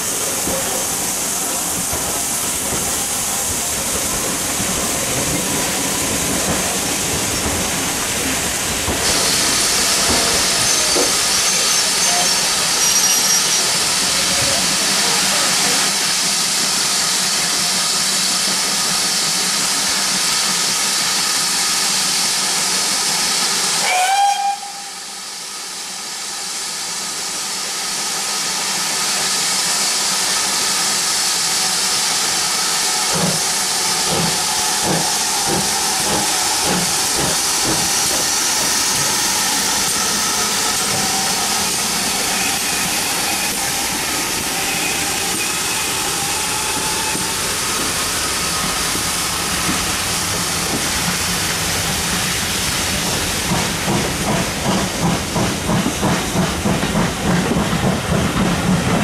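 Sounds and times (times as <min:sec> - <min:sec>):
hiss of escaping steam: 0:00.0 - 0:58.9
steam locomotive whistle: 0:23.8 - 0:25.4.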